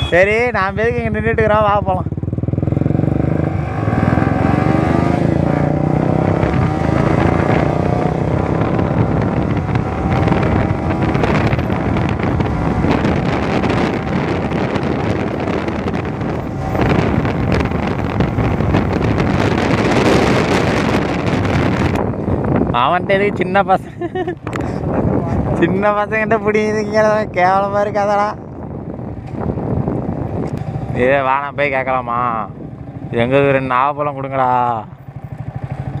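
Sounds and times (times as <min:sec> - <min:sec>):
motorcycle engine running: 0:00.0 - 0:22.9, 0:32.2 - 0:36.0
wind rush on microphone: 0:00.0 - 0:34.2.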